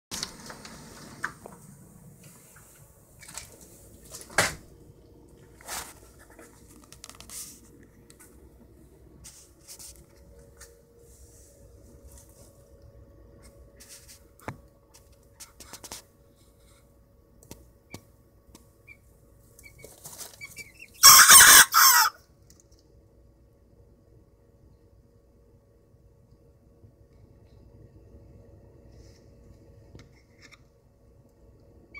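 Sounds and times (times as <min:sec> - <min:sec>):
faint rustles and knocks: 0:05.3 - 0:18.7
young rooster crowing hoarsely: 0:21.0 - 0:22.2.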